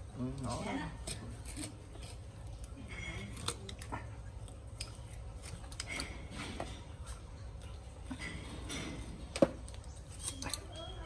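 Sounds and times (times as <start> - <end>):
scissors cutting hide: 0.4 - 2.2, 10.1 - 10.8.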